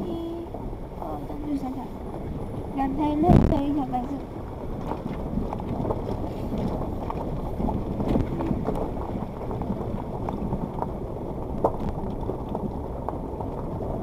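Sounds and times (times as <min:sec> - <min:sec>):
tyres and drivetrain rumble: 0:00.0 - 0:14.0
stones clicking under wheels: 0:02.0 - 0:14.0.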